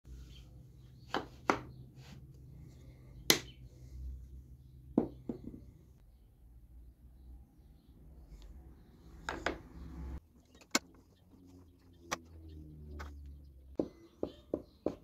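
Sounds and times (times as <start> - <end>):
wooden pieces knocking on workbench: 5.0 - 5.7.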